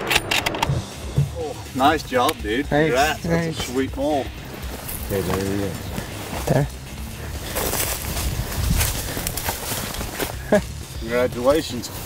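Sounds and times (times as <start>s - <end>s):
footsteps through dry leaves: 4.2s - 12.0s.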